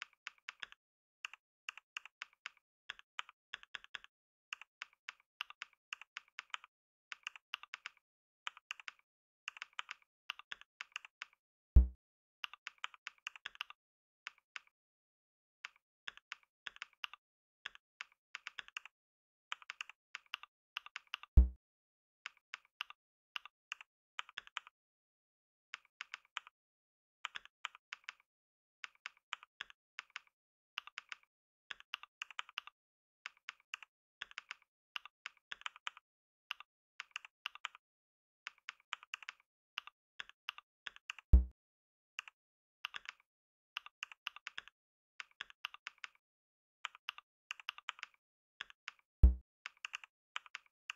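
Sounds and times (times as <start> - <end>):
deep thumps: 11.8 - 12.0
keyboard typing clicks: 19.5 - 21.6, 40.2 - 41.5.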